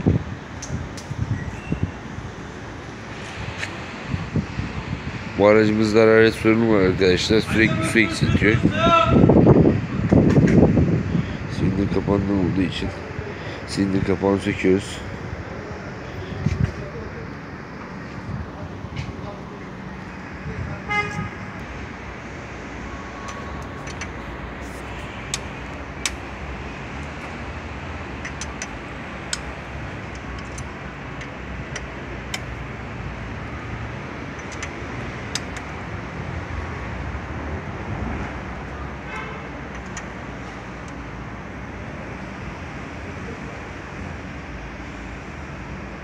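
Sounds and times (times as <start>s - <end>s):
traffic noise: 0.0s - 46.0s.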